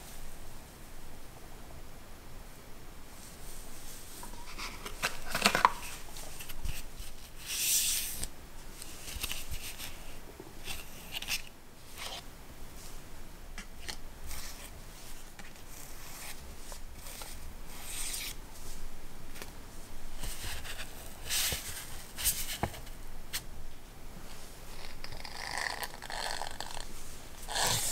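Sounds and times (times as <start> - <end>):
paper rustling and crinkling: 3.8 - 12.2.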